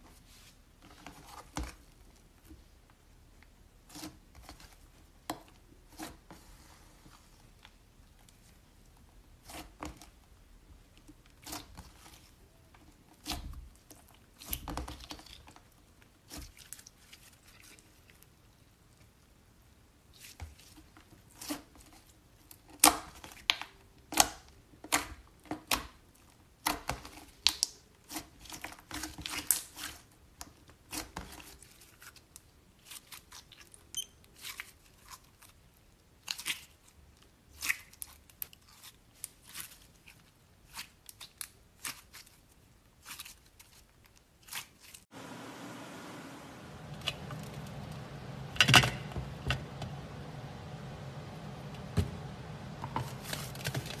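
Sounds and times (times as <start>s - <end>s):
hands squeezing slime: 36.2s - 45.0s.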